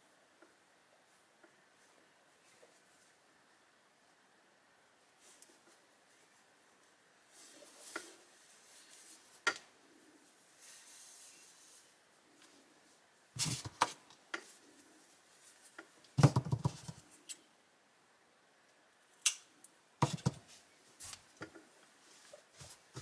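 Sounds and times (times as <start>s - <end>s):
yarn rubbing on knit fabric: 10.2s - 12.2s.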